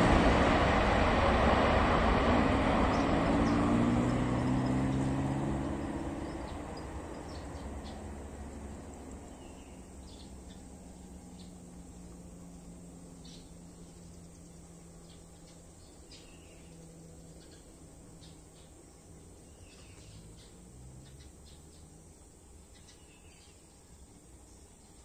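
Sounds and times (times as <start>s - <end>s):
airliner engine rush and hum: 0.0s - 18.2s
faint bird chirps: 9.0s - 12.1s, 13.1s - 22.0s, 22.6s - 25.0s.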